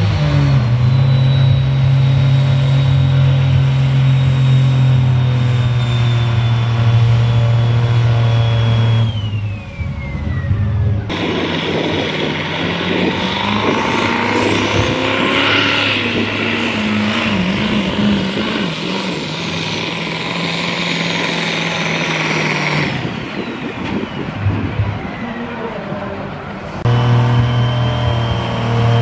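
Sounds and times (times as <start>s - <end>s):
diesel truck engine at full throttle: 0.0s - 29.0s
turbo whistle: 0.3s - 11.1s, 26.9s - 29.0s.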